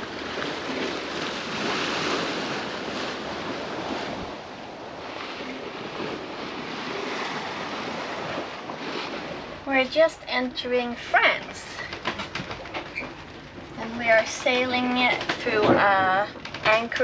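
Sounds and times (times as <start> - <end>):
wind on microphone: 0.0 - 10.0
water splashing along boat hull: 0.0 - 17.0.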